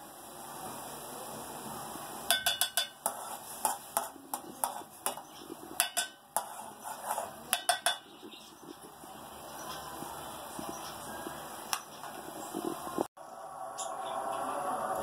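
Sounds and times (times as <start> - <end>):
steady hiss: 0.0 - 6.8
metal spoon clinking on pot: 2.3 - 6.6, 7.5 - 8.2.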